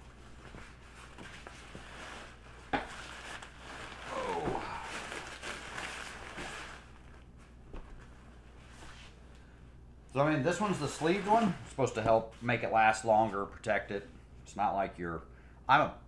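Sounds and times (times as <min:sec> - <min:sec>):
rope sleeve and bag rustling: 0:00.0 - 0:09.2, 0:10.5 - 0:12.1.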